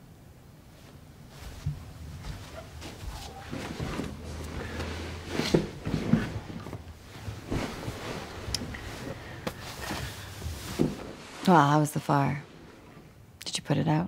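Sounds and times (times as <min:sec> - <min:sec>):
people rustling and sitting down: 0:00.7 - 0:13.0.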